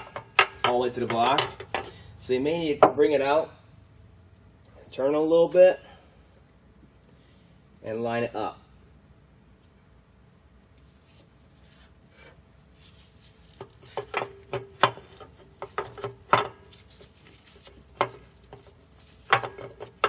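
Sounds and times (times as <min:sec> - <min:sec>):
metal oil pump clinking and knocking: 0:00.0 - 0:02.0, 0:13.6 - 0:16.7, 0:17.9 - 0:20.0.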